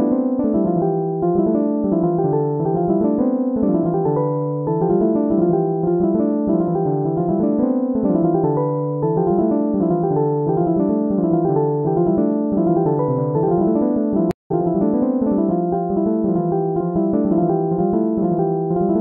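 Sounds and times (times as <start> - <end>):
piano tune: 0.0 - 19.0.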